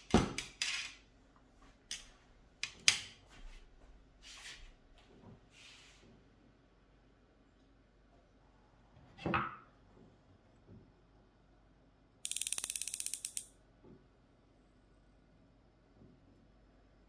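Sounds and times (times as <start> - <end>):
fly reel ratchet clicking: 12.2 - 13.5.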